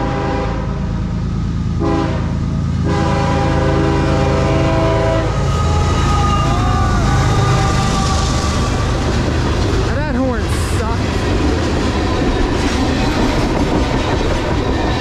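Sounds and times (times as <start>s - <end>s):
locomotive air horn blasts: 0.0s - 0.8s, 1.8s - 9.3s
diesel locomotive rumbling: 0.0s - 15.0s.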